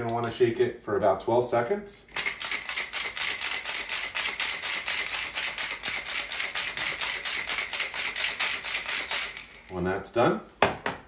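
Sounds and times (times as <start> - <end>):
ice rattling in cocktail shaker: 2.1 - 9.8.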